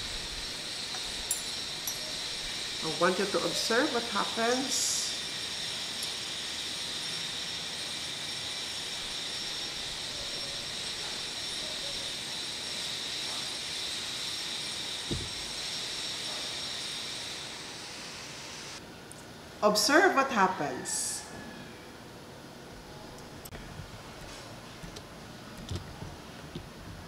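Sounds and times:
rushing background hiss: 0.0 - 18.8
soft low thump: 15.1 - 15.4.

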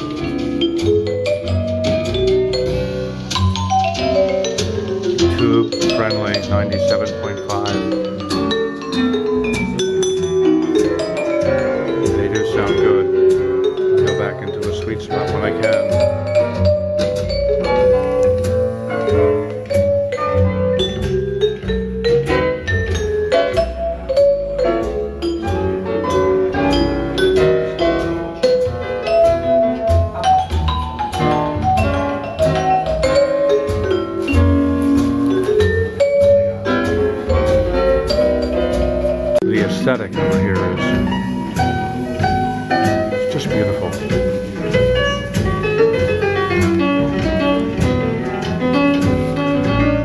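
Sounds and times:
music over loudspeakers: 0.0 - 50.0.

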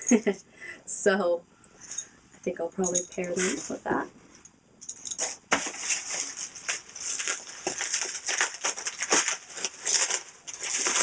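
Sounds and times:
packaging crinkling and rustling: 5.2 - 11.0.

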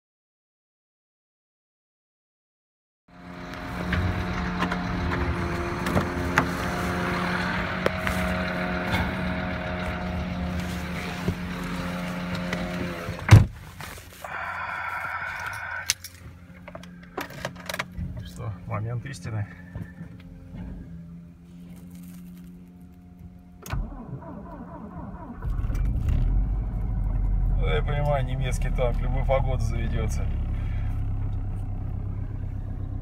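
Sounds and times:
car cabin sounds: 3.6 - 14.4
car door shutting: 10.5 - 13.8.

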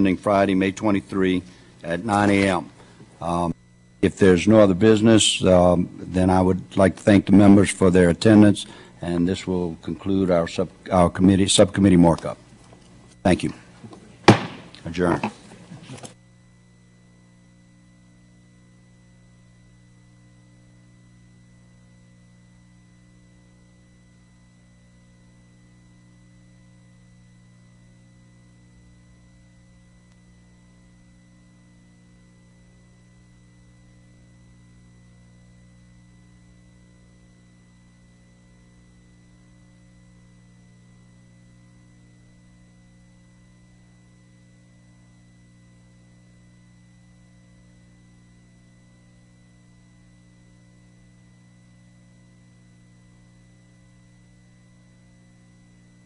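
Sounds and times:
electrical mains hum: 0.0 - 56.0.

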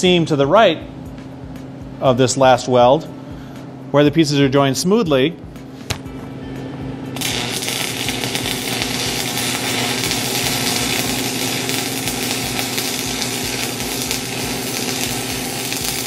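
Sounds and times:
welding arc crackling: 7.2 - 16.0.

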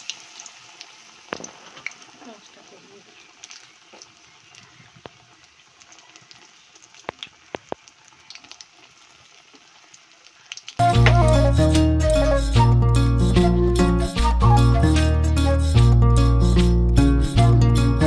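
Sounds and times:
food sizzling in hot oil: 0.0 - 11.6
oil crackling and popping: 0.0 - 11.6.

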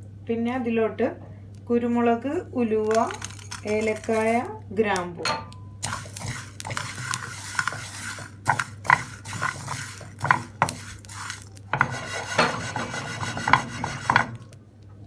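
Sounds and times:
seeds rattling in a pan: 2.8 - 4.5, 5.8 - 12.4
wooden spatula scraping a pan: 5.8 - 14.5.

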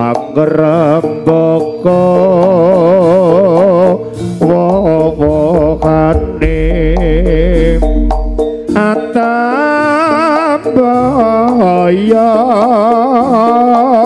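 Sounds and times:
gamelan music: 0.0 - 14.0
drum strokes: 4.4 - 9.3.

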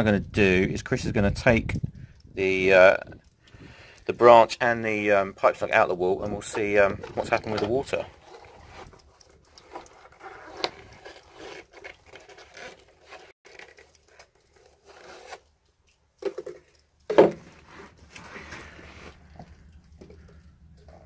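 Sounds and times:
plastic pipe scraping against seal: 5.5 - 15.5, 16.2 - 21.0.

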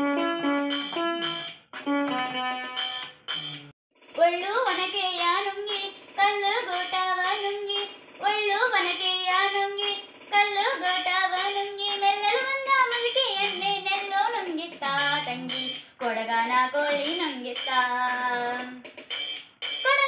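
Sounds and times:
girl singing into a microphone: 4.2 - 18.8.

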